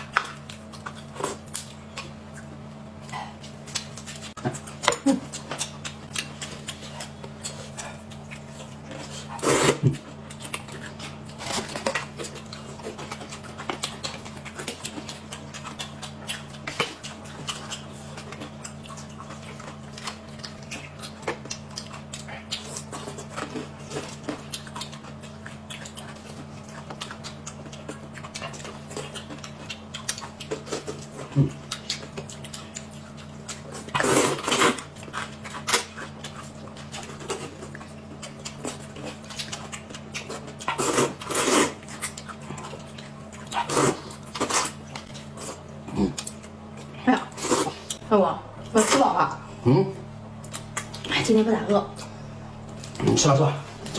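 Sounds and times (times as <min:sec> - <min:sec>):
chewing: 0:00.0 - 0:53.9
steady low hum: 0:00.0 - 0:53.9
slurping noodles: 0:09.2 - 0:09.9, 0:34.0 - 0:34.8, 0:40.8 - 0:41.8, 0:43.6 - 0:44.8.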